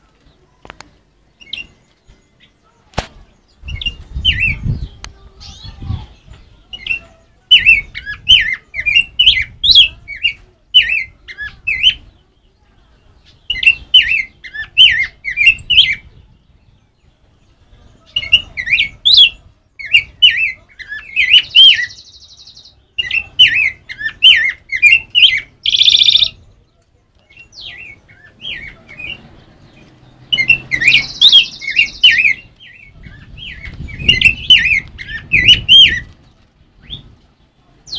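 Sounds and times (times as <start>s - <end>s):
bird singing warbled phrases: 0.0s - 37.9s.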